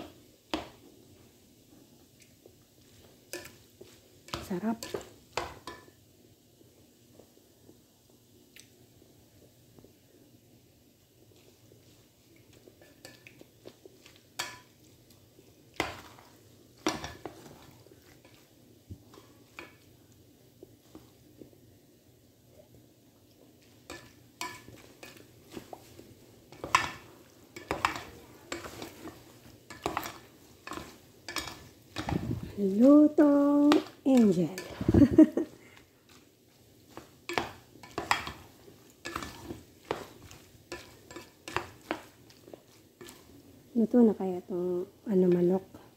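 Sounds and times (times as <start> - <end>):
spoon stirring pasta in metal pot: 0.0 - 7.4, 11.1 - 21.6, 22.7 - 44.0.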